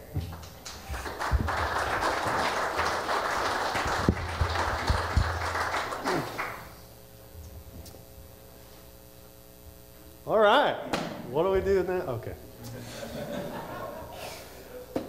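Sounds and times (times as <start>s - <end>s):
dull thumps: 0.0s - 2.0s
congregation applauding: 0.0s - 6.8s.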